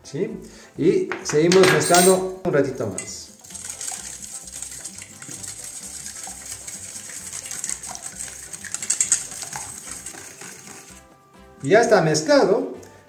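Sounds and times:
whisk clinking in metal bowl: 1.6s - 2.3s, 2.9s - 11.0s.

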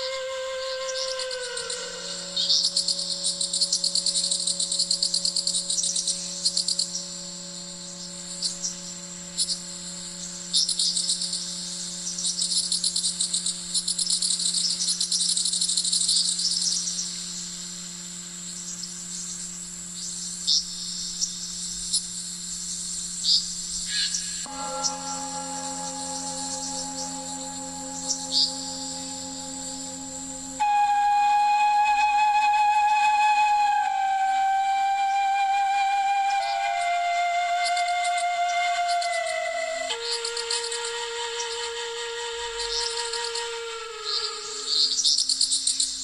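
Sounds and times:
low held drone: 0.0s - 13.8s, 24.4s - 45.2s
high fast chirring trills: 24.5s - 32.6s.

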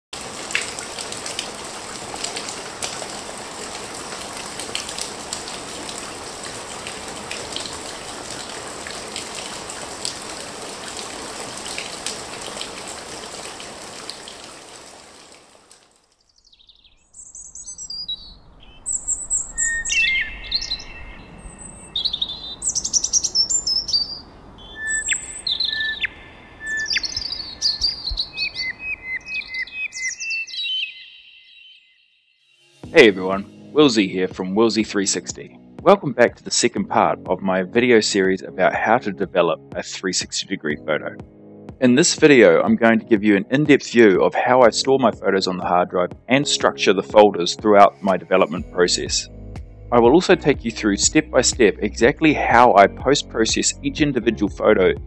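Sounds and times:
birds singing and chirping: 16.4s - 32.4s.

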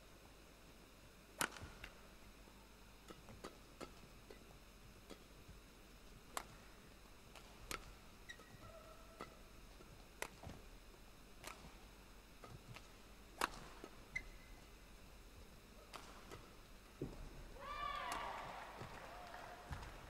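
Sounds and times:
racket striking shuttlecock: 1.4s - 1.8s, 13.4s - 14.4s, 15.9s - 16.5s
shoes squeaking on court: 7.8s - 9.0s, 13.4s - 14.7s.

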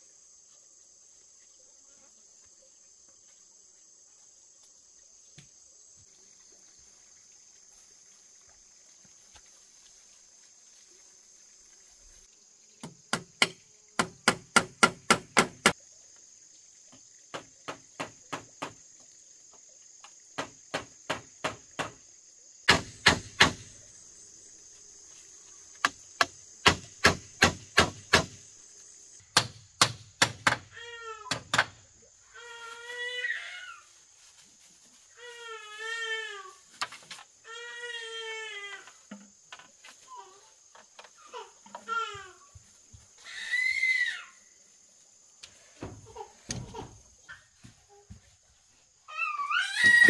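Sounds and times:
insects droning: 0.0s - 50.0s
hand tool chopping grass and soil: 22.7s - 23.7s, 25.8s - 28.4s.

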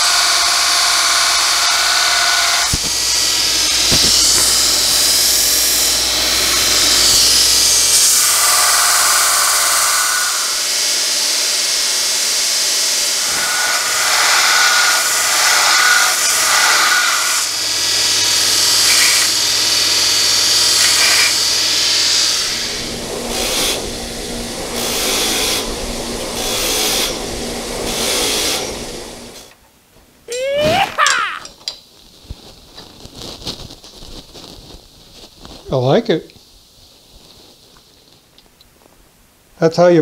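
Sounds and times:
grinder motor hum: 0.0s - 11.8s
belt grinder grinding steel: 0.0s - 12.0s, 12.8s - 28.7s.

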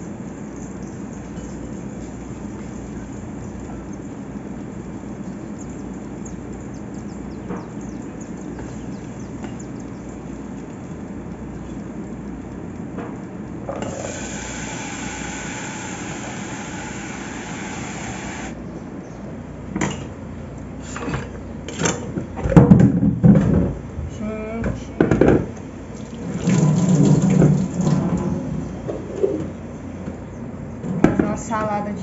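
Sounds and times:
okra sizzling in a pot: 13.8s - 18.6s.

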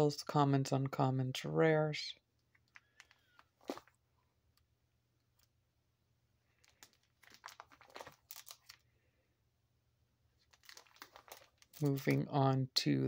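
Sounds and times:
plastic sleeve pages crinkling: 2.5s - 4.0s, 6.5s - 8.9s, 10.4s - 12.3s.

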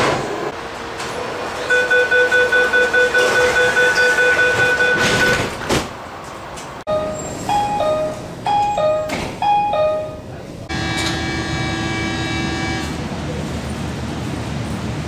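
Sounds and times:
rapid high electronic beeps: 1.7s - 5.5s
train doors knocking shut: 2.6s - 6.0s, 7.0s - 11.9s.

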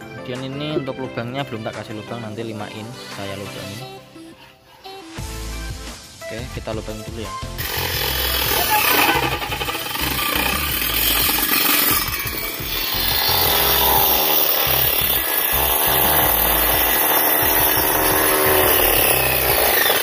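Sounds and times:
drill hole saw grinding wood: 7.6s - 20.0s.

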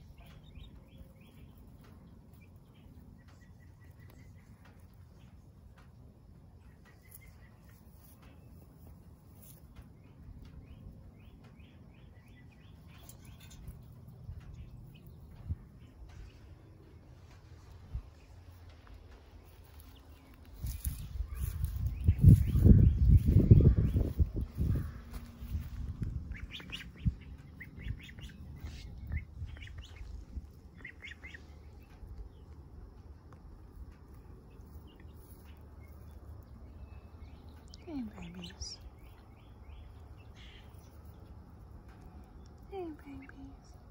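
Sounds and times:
goslings peeping: 0.0s - 5.4s, 19.4s - 32.5s
chicks peeping: 0.0s - 6.0s, 6.6s - 43.7s
rustle: 0.0s - 10.6s, 16.1s - 23.3s
low steady rumble: 0.0s - 43.9s.

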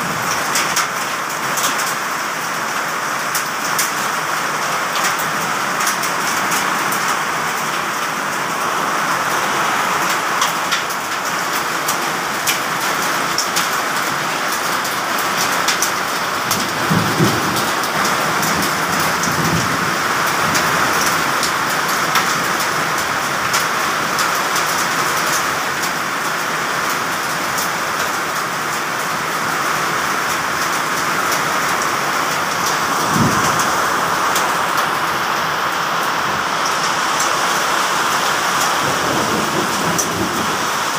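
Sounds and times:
heavy rain pouring: 0.0s - 40.9s
raindrops ticking on hard surfaces: 0.0s - 40.9s
thunder rumbling: 16.4s - 20.8s, 32.3s - 35.3s, 38.4s - 40.9s.

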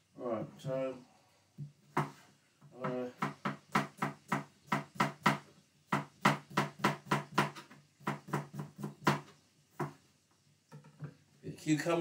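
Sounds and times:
knife chopping cucumber on board: 2.0s - 10.0s.

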